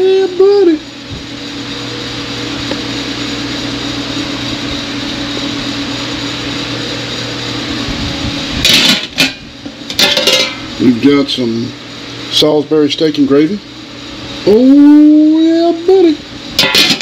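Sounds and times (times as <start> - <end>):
machine hum with fan hiss: 0.0 - 17.0
metallic clanks: 8.7 - 10.6.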